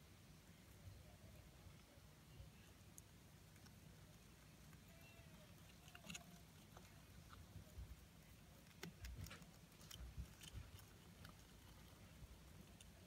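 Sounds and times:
roaches crawling clicks and scratches: 2.8 - 13.0.

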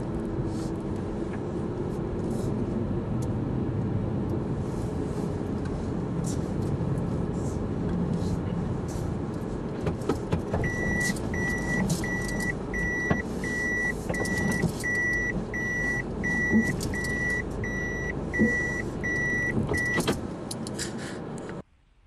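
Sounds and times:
low rumble of car moving: 0.0 - 22.0
car warning beeper: 10.6 - 20.1.

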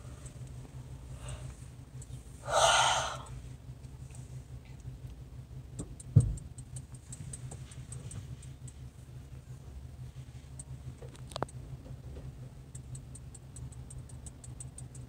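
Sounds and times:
low hum inside car: 0.0 - 15.0
breath-like hiss: 2.4 - 3.3
faint clicks: 12.7 - 15.0.

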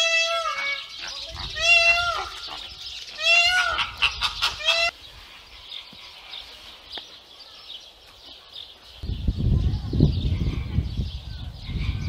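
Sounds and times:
flamingos honking: 0.0 - 5.0.

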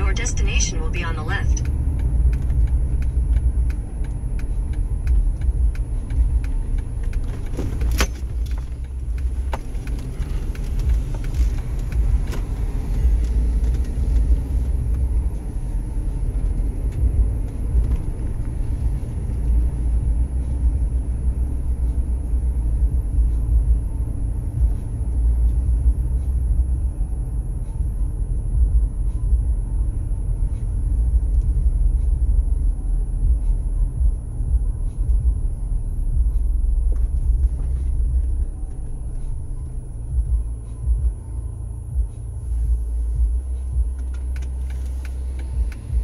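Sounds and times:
car engine and tyres rumbling: 0.0 - 46.0.

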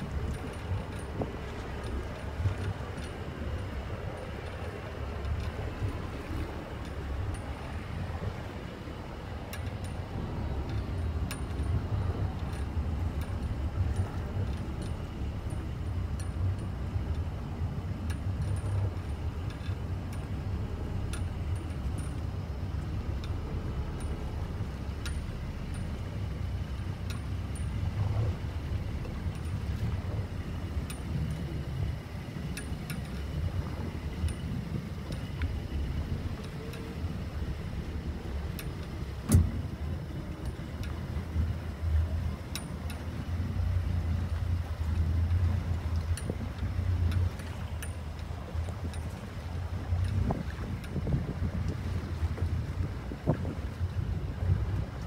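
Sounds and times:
faint high clicks and clinks: 0.0 - 7.9, 9.4 - 17.2, 18.0 - 20.3, 21.0 - 31.8
water slapping boat hull: 0.0 - 55.0
wind buffeting microphone: 0.0 - 55.0.

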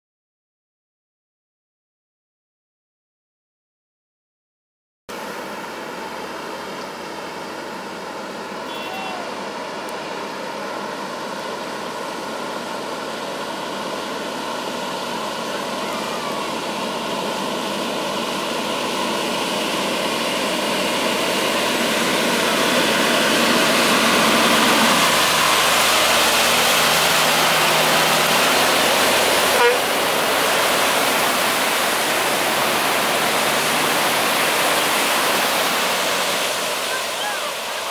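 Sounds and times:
truck diesel engine: 5.1 - 37.9
water spray hissing: 15.4 - 37.9.

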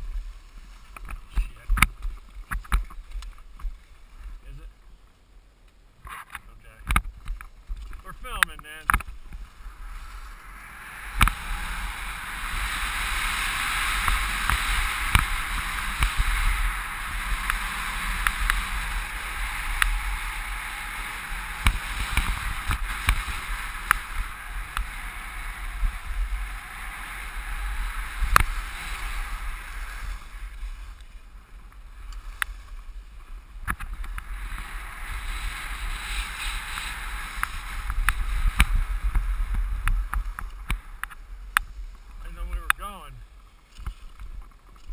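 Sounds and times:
wind rumble on microphone: 0.0 - 4.8, 6.0 - 44.9
skis hissing on snow: 9.3 - 31.3, 34.2 - 40.1.

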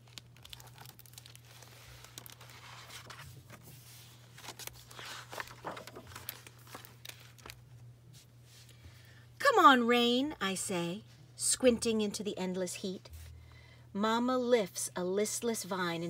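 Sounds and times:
book pages turning: 0.0 - 8.8.

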